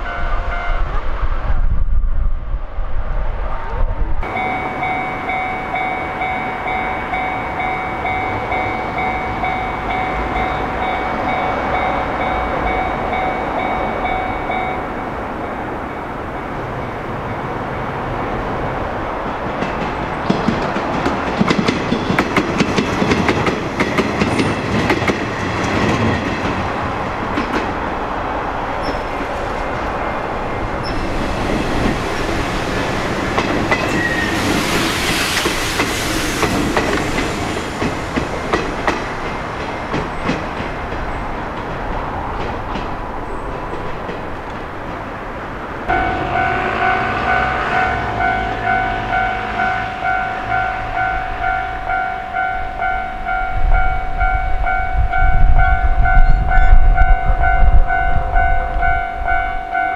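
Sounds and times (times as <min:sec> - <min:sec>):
steady ringing tone: 0:04.2 - 0:15.2, 0:45.9 - 0:59.9
train wheels clattering over rail joints: 0:19.4 - 0:27.8, 0:30.8 - 0:45.1
rushing hiss: 0:30.9 - 0:39.2.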